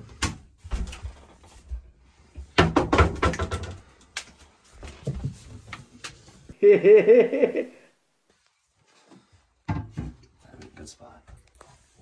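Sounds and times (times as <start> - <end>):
knocks and clatters of objects: 0.0 - 6.2, 9.6 - 11.5.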